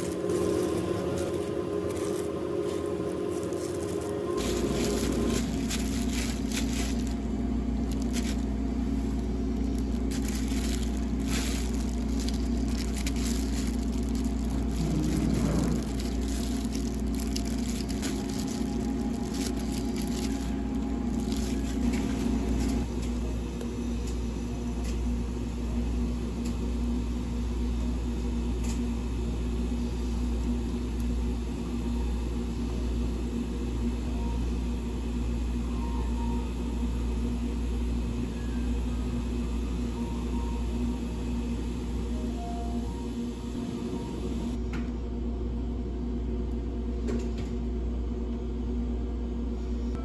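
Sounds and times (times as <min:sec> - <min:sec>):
gloved hands working dough: 0:00.0 - 0:22.9
low machine hum: 0:00.0 - 0:50.0.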